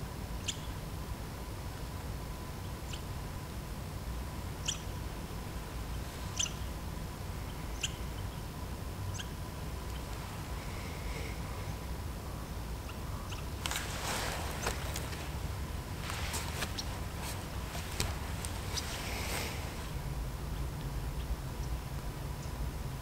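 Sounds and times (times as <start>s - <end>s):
low steady rumble: 0.0s - 23.0s
small animal chirping: 4.6s - 4.9s, 6.3s - 6.6s, 7.5s - 8.1s, 9.1s - 10.0s.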